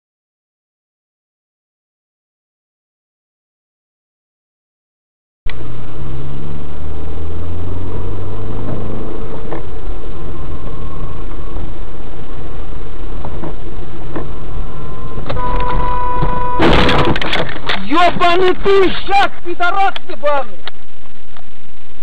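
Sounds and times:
car engine and road noise: 5.5 - 22.0
car horn: 14.8 - 17.2.

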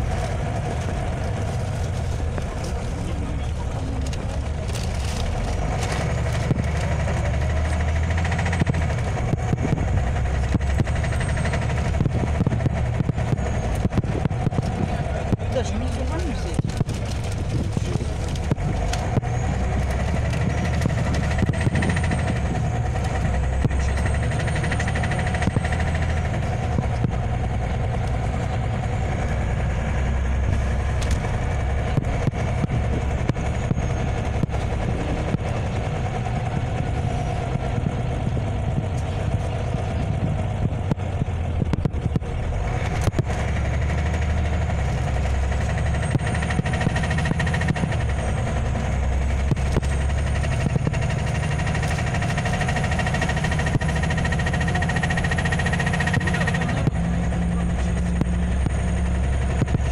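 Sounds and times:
bus engine rumble: 0.0 - 59.9
road noise: 0.0 - 59.9.

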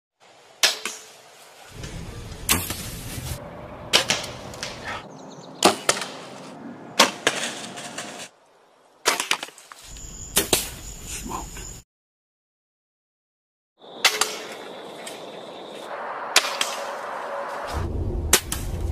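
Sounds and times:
arrows striking: 0.6 - 1.2, 1.8 - 8.3, 9.0 - 9.8, 14.0 - 15.3, 16.3 - 17.3.

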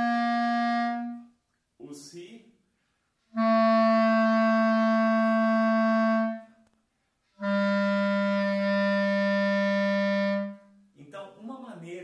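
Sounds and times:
clarinet low held notes: 0.0 - 1.4, 3.3 - 6.6, 7.3 - 10.8.

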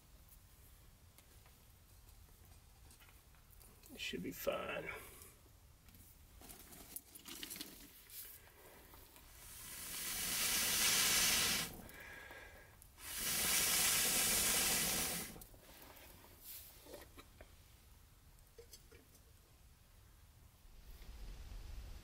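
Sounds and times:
person blowing into fire: 9.3 - 12.3, 13.0 - 15.5.

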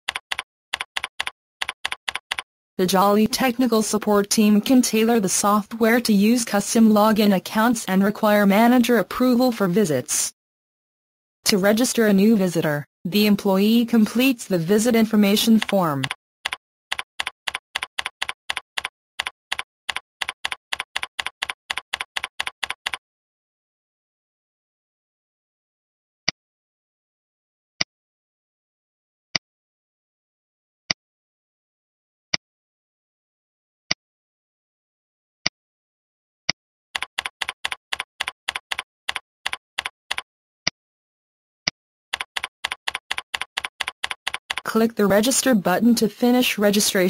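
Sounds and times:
keyboard typing: 0.1 - 3.5, 14.9 - 23.0, 37.0 - 40.2, 42.1 - 45.4.

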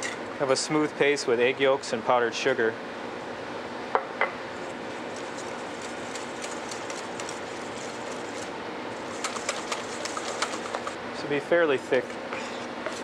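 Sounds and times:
mixing paste in a bowl: 4.9 - 11.0, 11.9 - 13.0.

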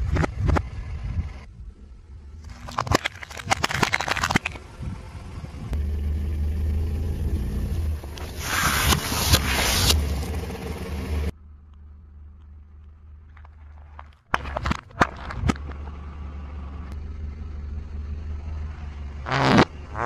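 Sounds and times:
cardboard cartons crunching: 2.5 - 4.6, 13.3 - 15.7
tyre crushing plastic cup: 2.5 - 4.6, 13.3 - 15.7.

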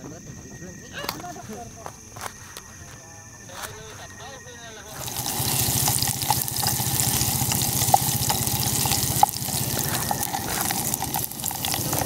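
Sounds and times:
food hissing in a pot: 4.9 - 12.0.

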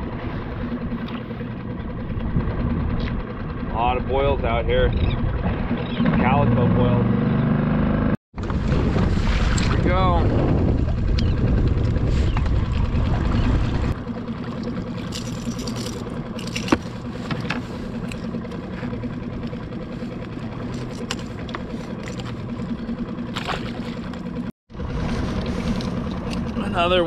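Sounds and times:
outboard motor running: 0.0 - 27.0
wind rumble on microphone: 1.8 - 6.6, 8.4 - 14.0.

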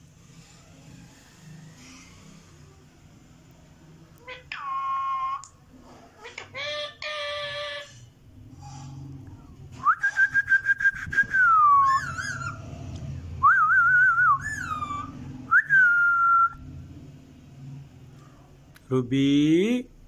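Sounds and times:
parakeet whistling: 9.8 - 12.8, 13.4 - 16.6.

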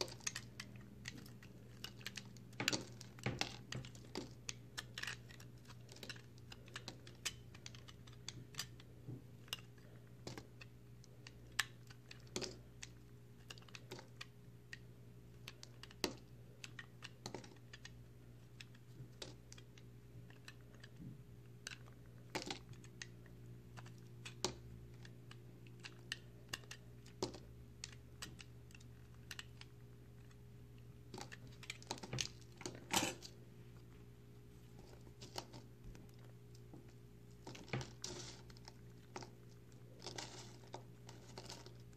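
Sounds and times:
knife cutting crumbly soap: 37.4 - 41.9.

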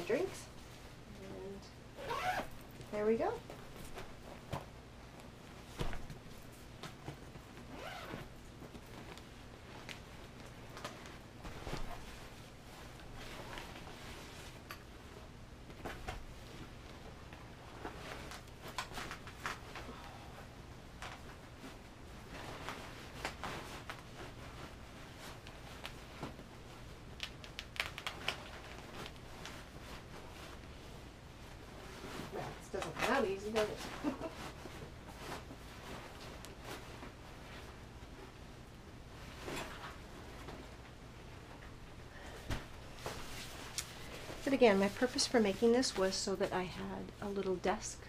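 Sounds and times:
zipper being pulled: 2.0 - 2.6, 7.7 - 8.3
rustling inside fabric bag: 2.0 - 14.7.

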